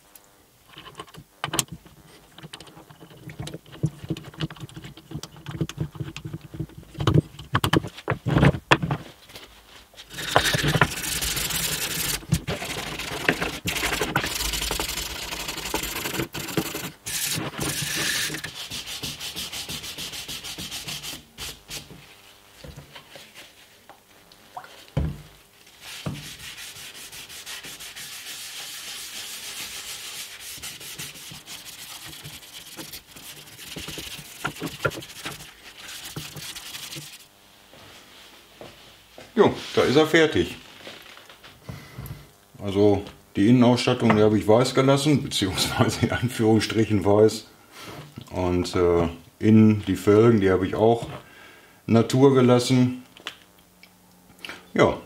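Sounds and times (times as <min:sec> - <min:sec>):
wooden parts knocking and clicking: 0:00.7 - 0:09.0
cloth rubbing wood: 0:09.9 - 0:23.8, 0:25.7 - 0:38.9
sanding sponge scraping wood: 0:10.1 - 0:21.9, 0:25.8 - 0:37.3.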